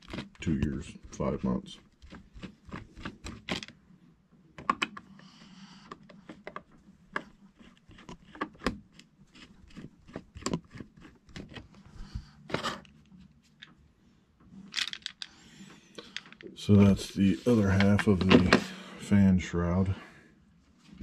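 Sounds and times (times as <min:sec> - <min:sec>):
plastic scraping: 0:00.0 - 0:03.8, 0:05.8 - 0:13.7, 0:14.5 - 0:18.9.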